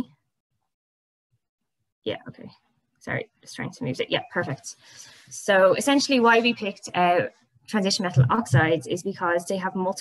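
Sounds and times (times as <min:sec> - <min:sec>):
woman speaking: 0:02.1 - 0:10.0.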